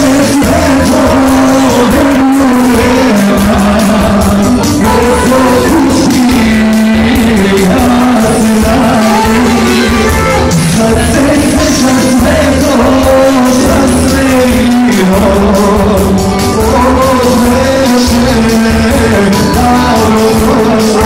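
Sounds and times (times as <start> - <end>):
loud amplified music: 0.0 - 21.0
man singing into microphone: 0.0 - 21.0.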